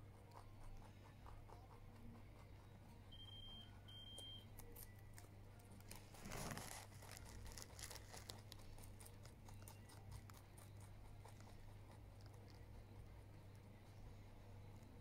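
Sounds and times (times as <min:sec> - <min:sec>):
rabbit chewing greens: 0:00.0 - 0:15.0
leaves rustling and tearing: 0:05.9 - 0:08.5.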